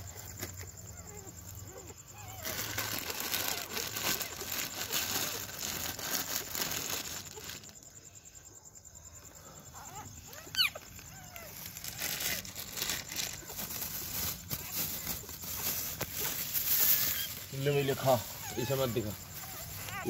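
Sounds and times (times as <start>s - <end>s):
plastic packet crinkling: 2.2s - 7.8s, 10.3s - 20.0s.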